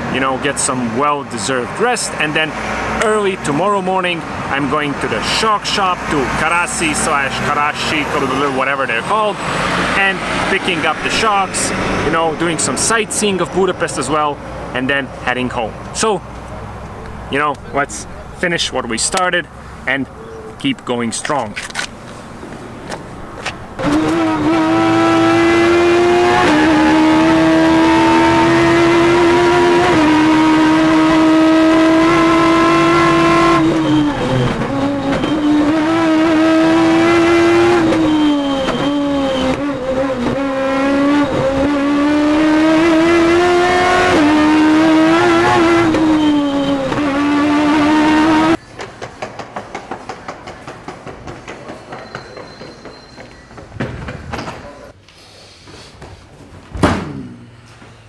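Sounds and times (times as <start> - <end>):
race engine screaming at high revs: 2.3 - 13.2, 23.8 - 48.6.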